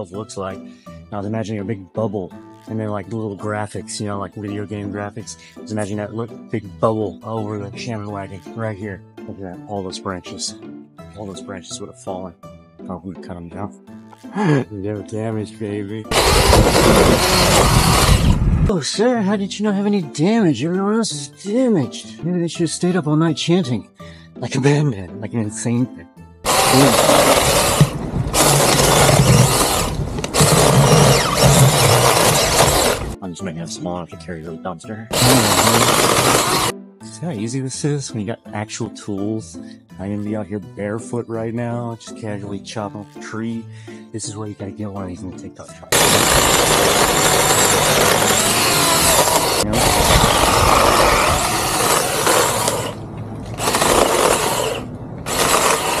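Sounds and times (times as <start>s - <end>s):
electric chainsaw cutting branches: 16.1s - 18.7s, 26.4s - 33.2s, 35.1s - 36.7s, 45.9s - 56.0s.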